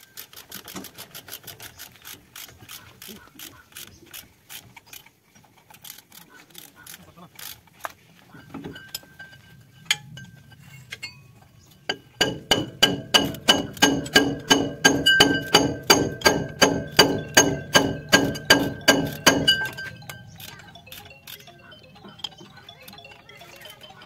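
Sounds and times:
sharp metallic clinks: 8.3s - 24.0s.

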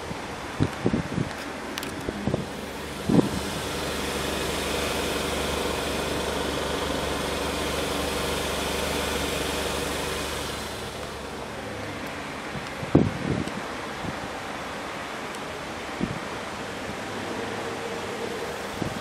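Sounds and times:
car engine idling: 1.8s - 12.8s.

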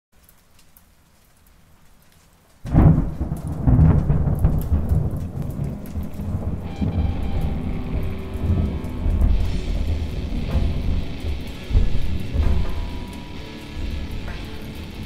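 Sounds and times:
rain pattering: 0.1s - 15.0s
thunder crack and rumble: 2.6s - 15.0s.

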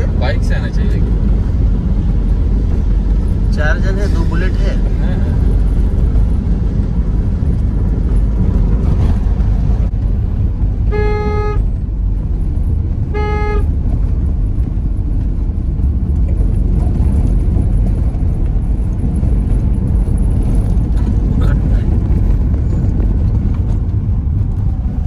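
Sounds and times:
car interior rumble: 0.0s - 25.0s
car horn honks: 10.8s - 11.7s, 13.1s - 13.7s.

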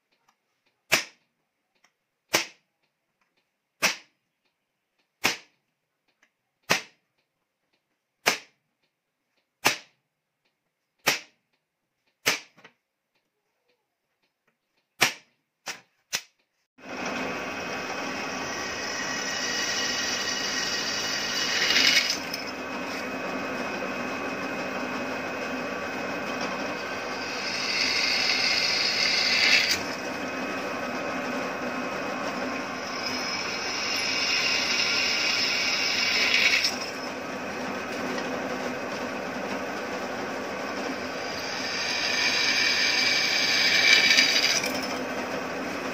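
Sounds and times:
drill press running: 16.8s - 45.9s
drill bit screeching on steel: 17.8s - 23.0s, 26.4s - 30.0s, 32.4s - 37.1s, 41.1s - 45.0s.

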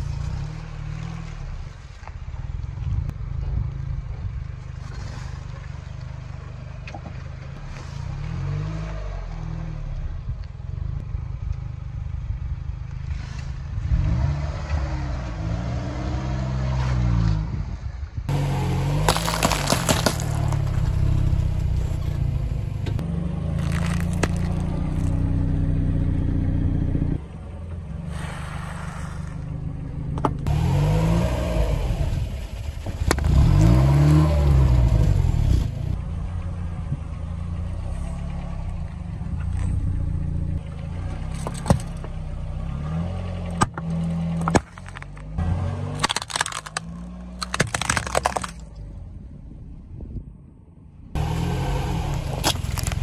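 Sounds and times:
crunching: 18.3s - 22.1s, 23.5s - 25.2s, 43.5s - 48.8s, 52.1s - 53.0s
car engine revving: 18.3s - 47.5s, 51.2s - 53.0s
tyre crushing objects: 18.8s - 21.0s, 23.6s - 25.1s, 43.6s - 48.6s, 52.3s - 53.0s
sharp cracks: 19.0s - 21.0s, 44.4s - 48.8s.

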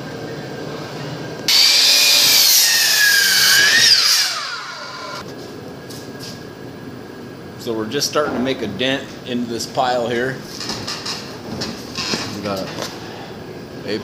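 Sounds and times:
miter saw whining: 1.5s - 5.2s.

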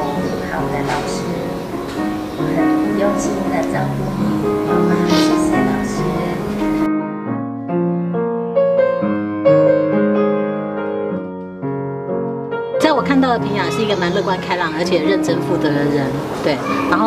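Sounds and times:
voice: 0.0s - 1.6s, 2.5s - 4.0s, 4.7s - 6.5s, 12.8s - 17.0s
gentle piano music: 0.0s - 17.0s.

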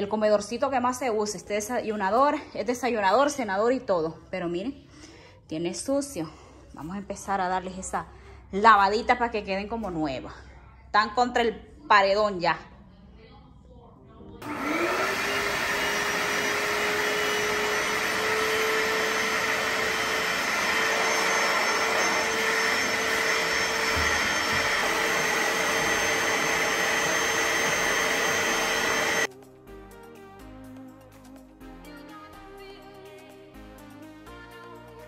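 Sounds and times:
spot cleaner motor whine: 14.4s - 29.3s.

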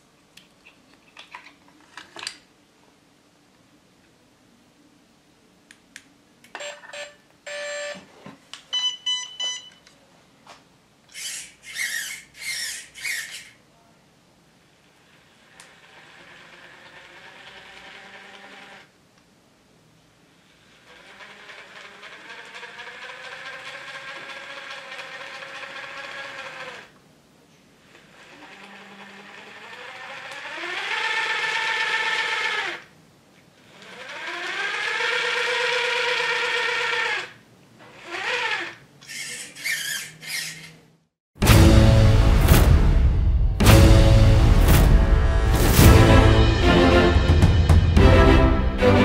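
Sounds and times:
electric motor and gears whining: 11.1s - 13.6s, 15.4s - 18.9s, 20.6s - 26.9s, 27.8s - 32.9s, 33.6s - 40.8s.

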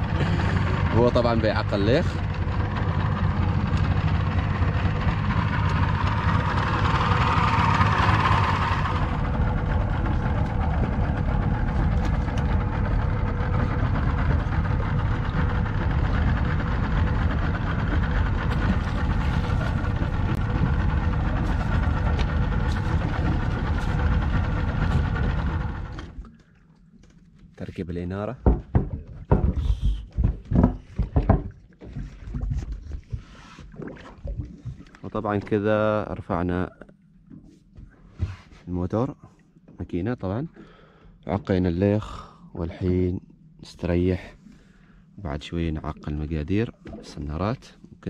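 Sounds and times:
outboard motor running: 0.0s - 27.4s.

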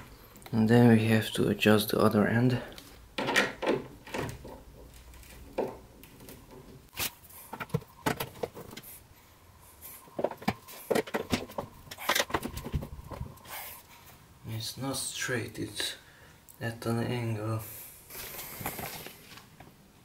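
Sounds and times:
wooden panels clicking and knocking: 3.2s - 6.9s, 7.5s - 8.9s, 10.2s - 13.3s.

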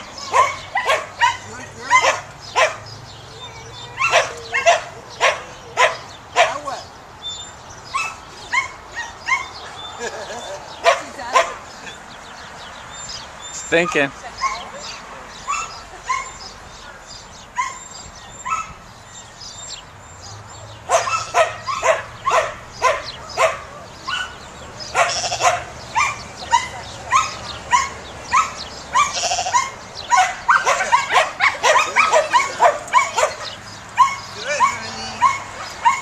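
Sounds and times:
dog barking and yipping: 0.0s - 2.9s, 3.5s - 6.8s, 7.9s - 9.8s, 10.8s - 11.6s, 13.7s - 18.8s, 20.8s - 36.0s.

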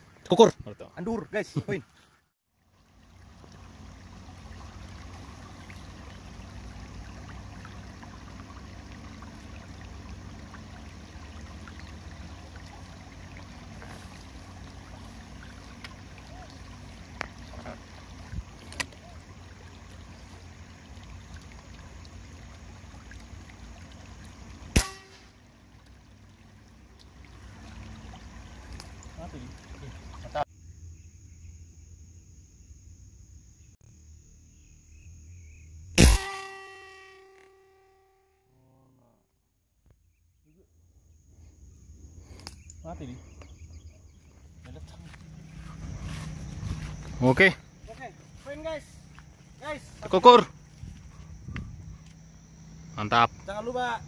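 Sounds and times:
air rifle shot: 24.8s - 25.3s, 36.0s - 36.8s.

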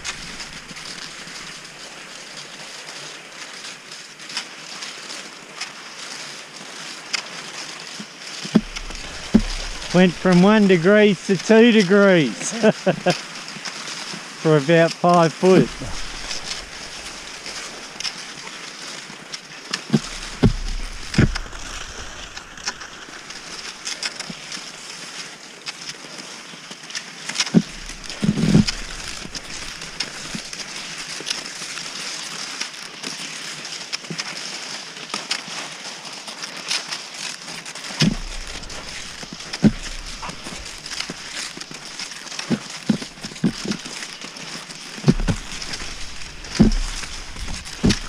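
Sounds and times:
ski poles clicking: 0.0s - 1.8s, 7.1s - 14.1s, 15.4s - 24.8s, 27.3s - 32.3s, 36.6s - 48.0s
skis sliding over snow: 0.0s - 48.0s
dull thumps: 8.6s - 10.5s, 15.6s - 18.1s, 19.9s - 23.7s, 27.6s - 30.5s, 38.0s - 44.2s, 44.8s - 48.0s.

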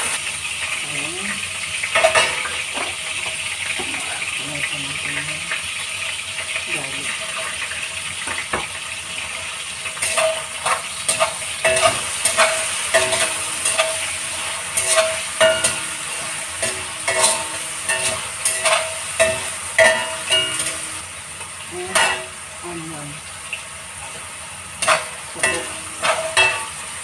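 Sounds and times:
meat sizzling in a wok: 0.0s - 27.0s
metal spatula scraping a wok: 9.8s - 21.0s, 24.8s - 27.0s.

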